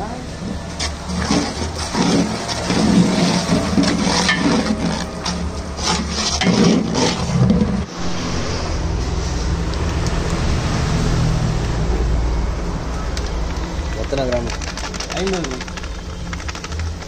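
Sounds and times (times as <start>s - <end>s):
spatula scraping pot: 0.4s - 7.9s.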